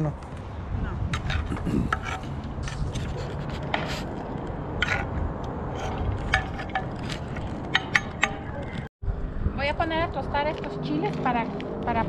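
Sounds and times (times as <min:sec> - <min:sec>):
steady low rumble: 0:00.0 - 0:12.0
utensil scraping in a cooking pot: 0:01.2 - 0:04.2.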